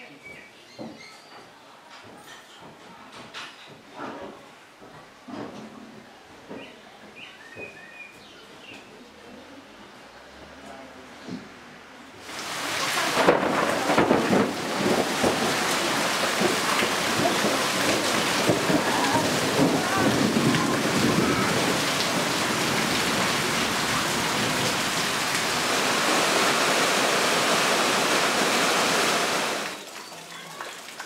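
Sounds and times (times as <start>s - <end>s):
heavy rain falling: 12.2s - 31.0s
water pouring off roof eaves: 12.2s - 31.0s.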